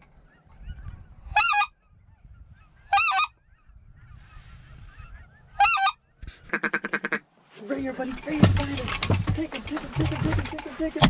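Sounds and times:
geese honking: 0.0s - 7.3s.

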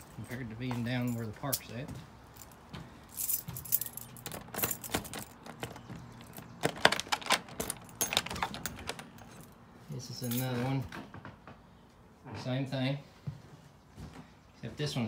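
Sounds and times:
keys jangling: 2.4s - 9.6s, 10.2s - 10.6s.

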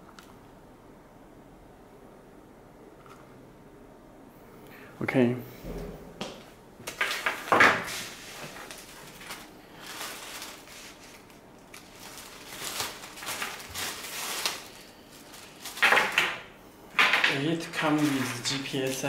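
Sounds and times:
plastic bag crinkling: 6.9s - 19.0s
cables rattling: 8.5s - 19.0s.

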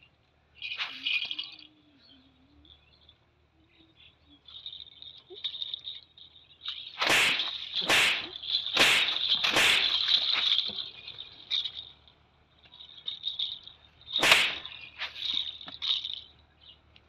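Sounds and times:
broom swishing through air: 7.0s - 10.6s, 14.2s - 15.4s.

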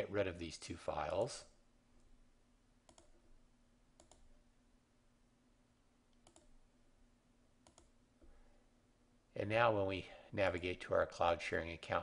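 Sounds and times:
faint steady hum: 0.0s - 12.0s
computer mouse clicks: 2.8s - 3.2s, 4.0s - 4.3s, 6.1s - 6.6s, 7.6s - 8.3s.

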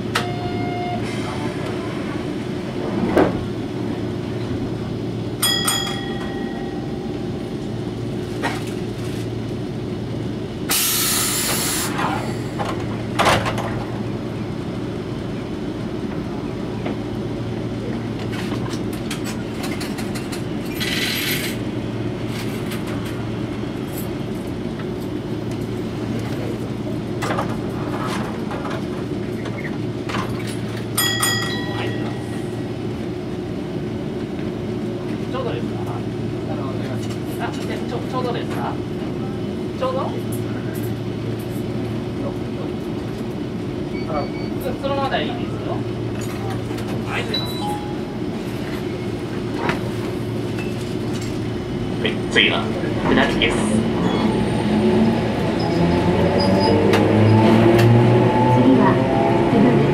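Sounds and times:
tram equipment hum: 0.0s - 59.9s
short sharp air hiss: 10.7s - 11.9s.

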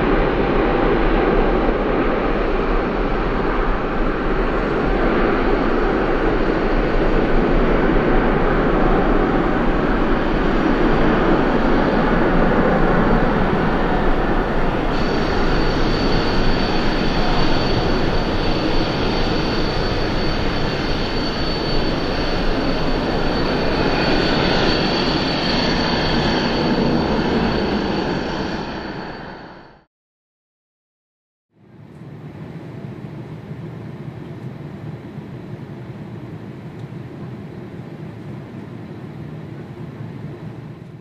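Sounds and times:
jet engines roaring: 0.0s - 29.9s
thin high tone: 10.1s - 29.4s.

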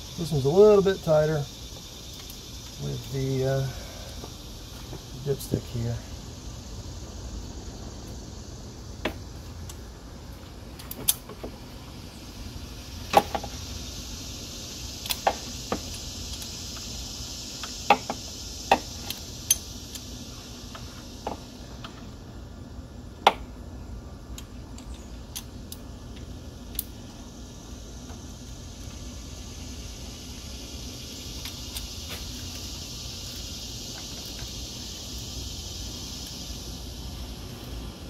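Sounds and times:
ratchet clicking and clinking: 17.6s - 20.1s.

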